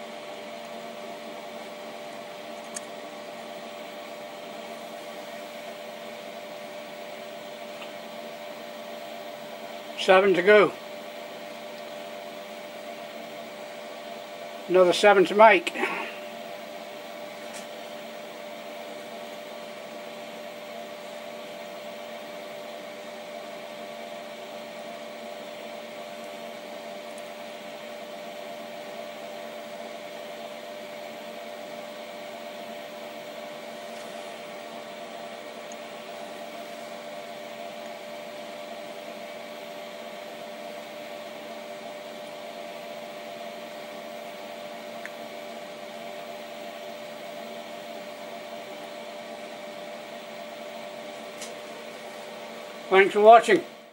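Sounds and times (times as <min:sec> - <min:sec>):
workshop machinery hum: 0:00.0 - 0:53.9.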